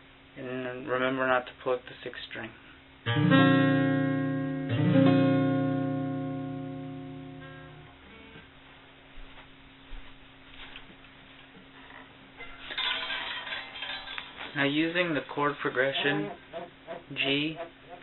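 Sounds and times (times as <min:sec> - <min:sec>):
acoustic guitar chord ringing: 0:03.0 - 0:08.4.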